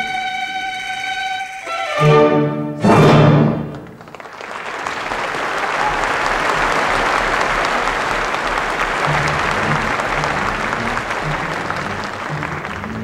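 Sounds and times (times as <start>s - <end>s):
audience applauding: 3.5s - 13.0s.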